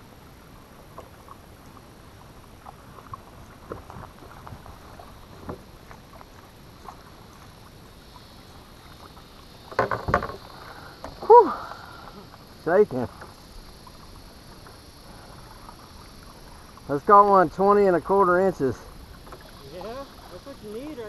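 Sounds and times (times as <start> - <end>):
waves lapping against kayak hull: 0.0 - 21.0
knocks on kayak hull: 9.7 - 11.2.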